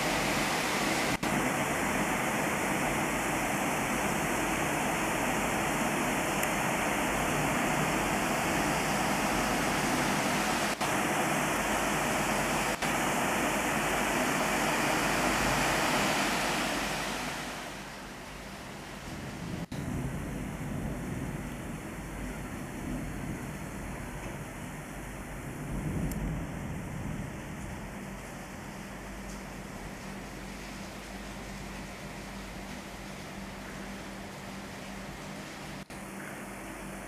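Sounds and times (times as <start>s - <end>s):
rain on water and paving: 0.0s - 37.0s.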